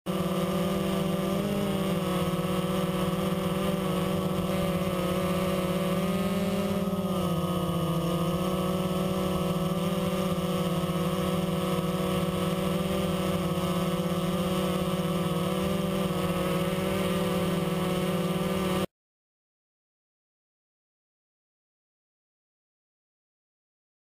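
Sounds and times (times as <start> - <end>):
quadcopter motors buzzing: 0.1 - 18.9.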